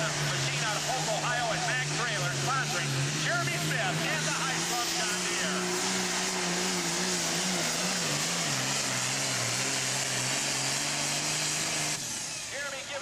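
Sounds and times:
diesel tractor engine at full throttle: 0.0s - 13.0s.

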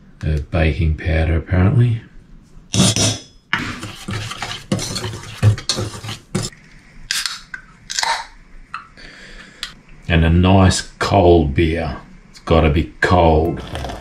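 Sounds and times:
utensil stirring batter in bowl: 3.0s - 6.6s.

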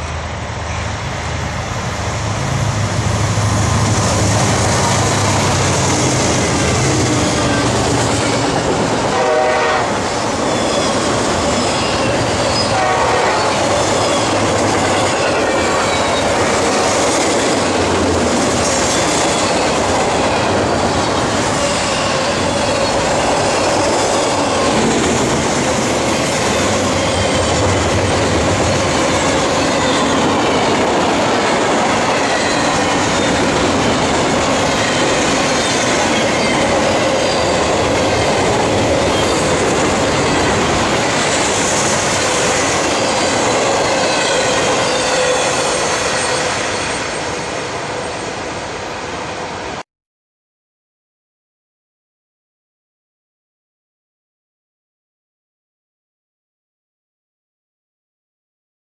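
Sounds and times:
freight train wheels rumbling: 0.0s - 49.8s
high wheel squeals: 10.1s - 12.8s, 42.4s - 48.4s.

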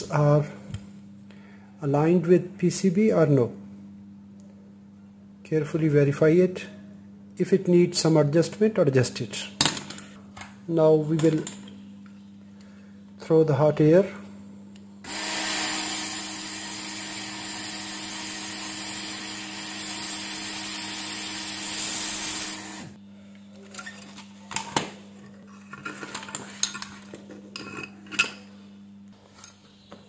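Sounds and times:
hot air station hissing: 15.0s - 23.0s.

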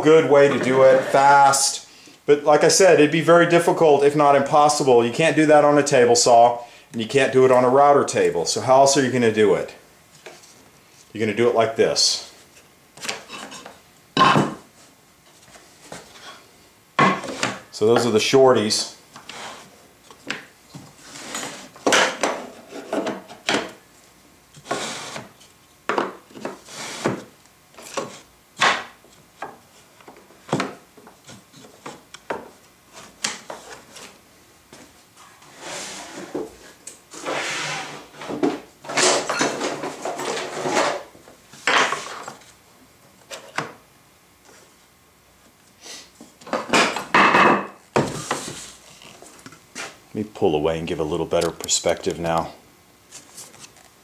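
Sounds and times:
wood sliding scrapes: 0.2s - 1.7s, 19.2s - 19.8s, 24.6s - 25.3s, 26.6s - 28.2s, 35.4s - 41.1s.

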